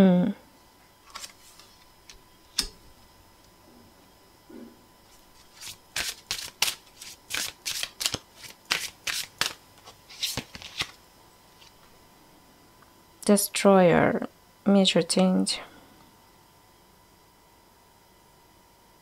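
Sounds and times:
tarot cards being shuffled: 0:01.0 - 0:02.7, 0:05.1 - 0:11.0, 0:11.6 - 0:11.8
card snap: 0:05.6 - 0:09.6
quick card slaps: 0:05.6 - 0:10.9.

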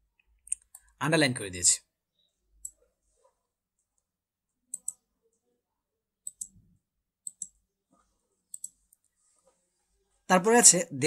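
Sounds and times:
computer mouse button clicking: 0:04.7 - 0:05.0, 0:06.2 - 0:06.6, 0:07.2 - 0:07.6.

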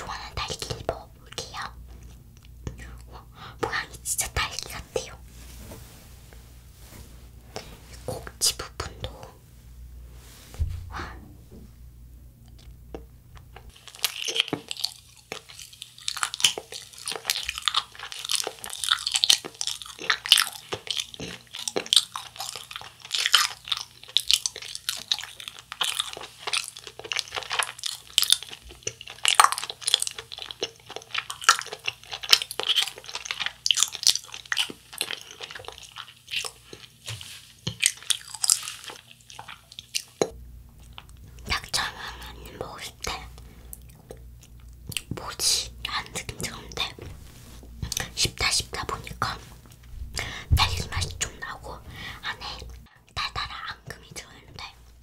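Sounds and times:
person chewing: 0:12.4 - 0:55.0.

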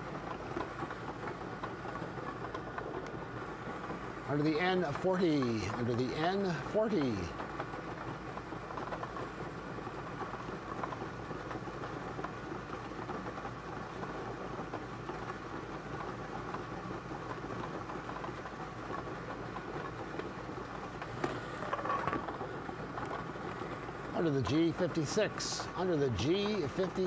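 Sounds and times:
blower machine whirring: 0:00.0 - 0:27.0.

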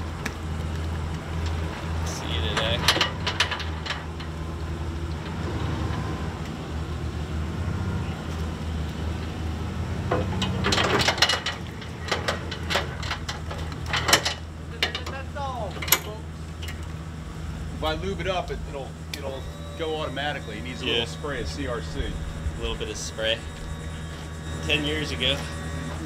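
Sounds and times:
low motor hum: 0:00.0 - 0:26.0
boat hull clunking on trailer: 0:02.5 - 0:04.5, 0:10.0 - 0:15.2.

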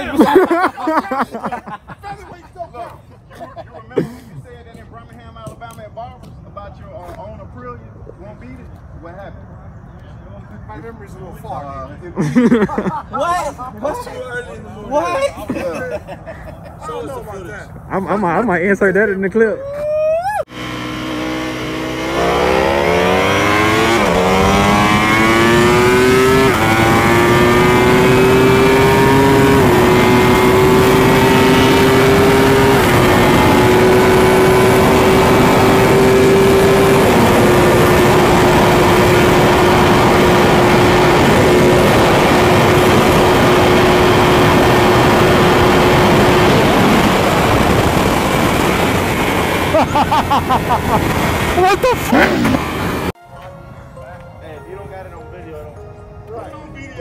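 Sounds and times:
motorcycle engine accelerating: 0:20.5 - 0:53.2
wind noise: 0:23.2 - 0:53.1.

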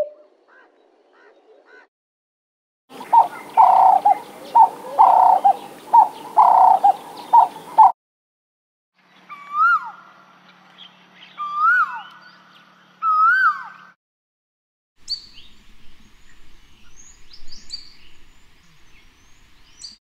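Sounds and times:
dove cooing: 0:00.0 - 0:01.3, 0:03.0 - 0:07.9
koel whistled calls: 0:03.0 - 0:07.9.

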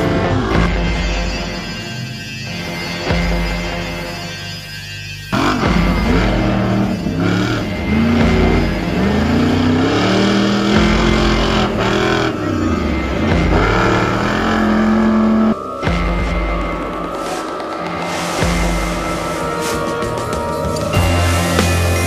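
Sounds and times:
truck engine revving hard: 0:05.4 - 0:16.0.

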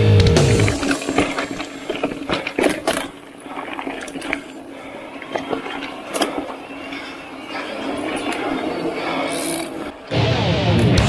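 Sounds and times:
mountain bike rattling on trail: 0:00.4 - 0:10.0.

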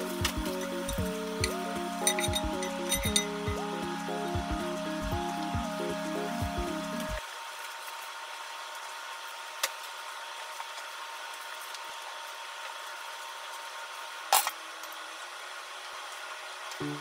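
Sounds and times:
background music: 0:00.0 - 0:07.2
faint room hiss: 0:00.0 - 0:17.0
chopsticks clinking on metal bowl: 0:02.0 - 0:03.3.

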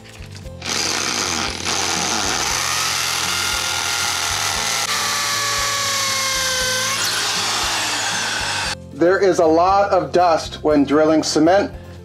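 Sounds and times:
hammer drill boring into block: 0:00.6 - 0:08.8.

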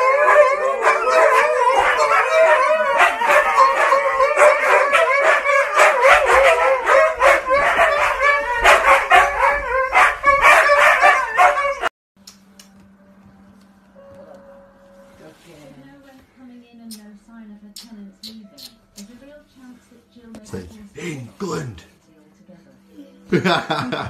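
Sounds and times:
huskies howling and yipping: 0:00.0 - 0:11.9.

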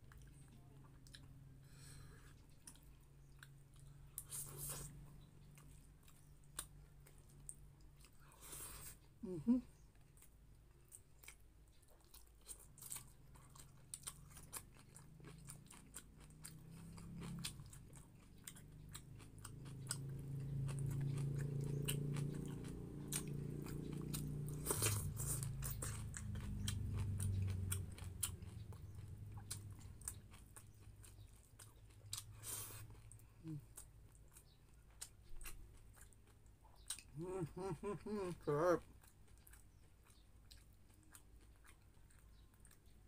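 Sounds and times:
crunchy chewing of vegetables: 0:00.0 - 0:43.0.

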